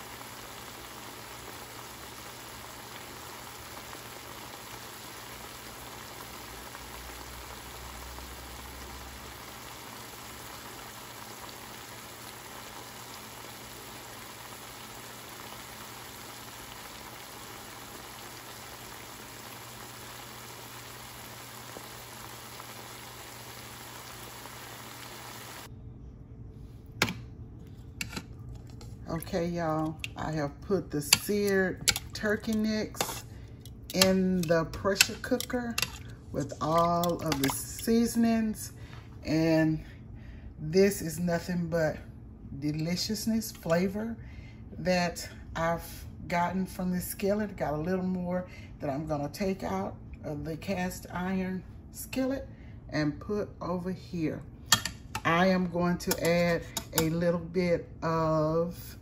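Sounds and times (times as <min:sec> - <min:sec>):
meat sizzling in oil: 0:00.0 - 0:25.7.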